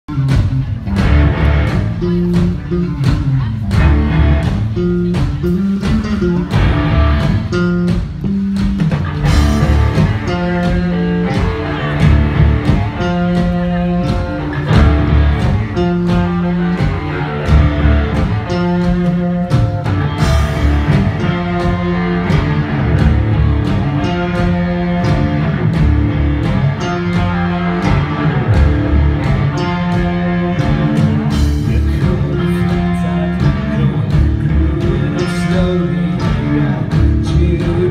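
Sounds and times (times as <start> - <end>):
live band with guitars: 0.0 - 37.9.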